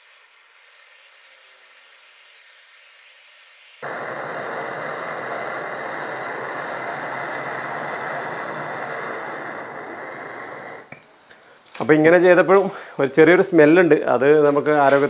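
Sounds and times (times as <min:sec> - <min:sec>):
fire crackling: 0:03.8 - 0:11.6.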